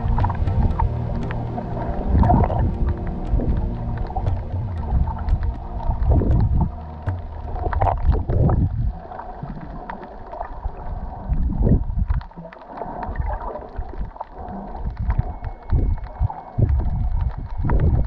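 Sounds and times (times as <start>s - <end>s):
sharp clicks: 0.0s - 8.3s
underwater rushing water: 0.0s - 18.0s.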